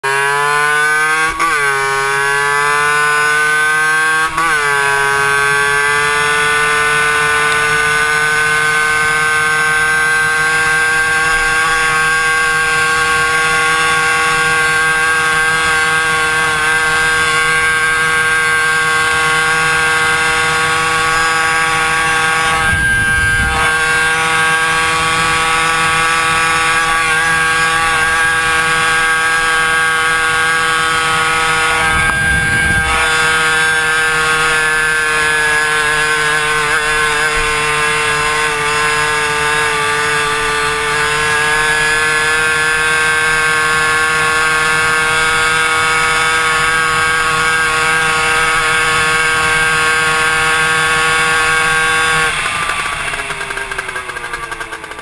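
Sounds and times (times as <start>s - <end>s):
moped engine revving high: 0.0s - 55.0s
wind rumble on microphone: 20.9s - 30.0s, 30.7s - 34.2s.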